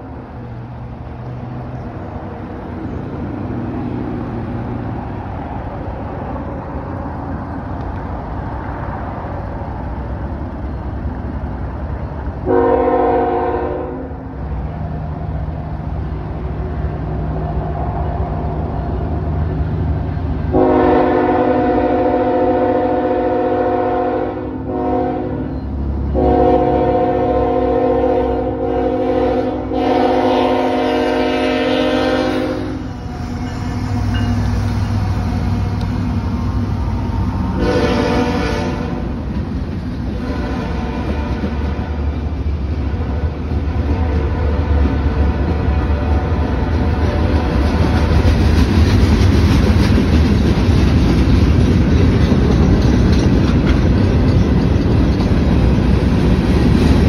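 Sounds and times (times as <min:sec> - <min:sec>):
diesel locomotives rumbling: 0:00.0 - 0:57.0
train air horn blasts: 0:12.4 - 0:14.2, 0:20.5 - 0:25.5, 0:26.1 - 0:34.5, 0:37.5 - 0:39.2, 0:40.1 - 0:42.2, 0:43.0 - 0:48.2
freight cars clattering: 0:46.8 - 0:57.0.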